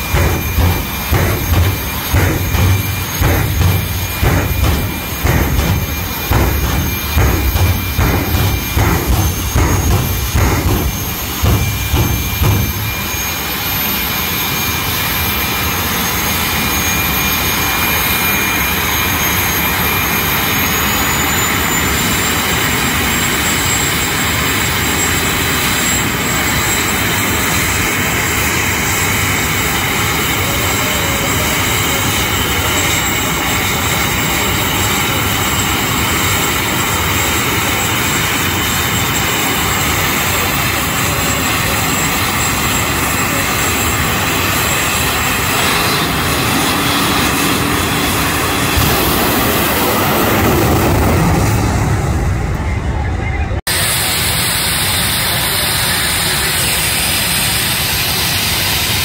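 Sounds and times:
throbbing low engine pulses: 0.0 - 13.8
jet engine roar and whine: 0.0 - 59.0.

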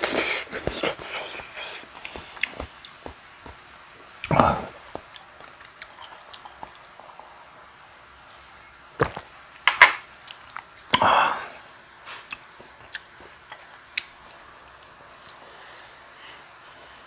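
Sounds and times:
chewing: 0.0 - 3.6, 4.2 - 7.4, 12.1 - 14.4.

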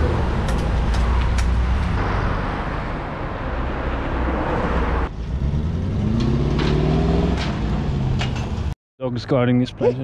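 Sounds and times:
road traffic rumble: 0.0 - 8.8
truck engine revving: 5.1 - 8.7.

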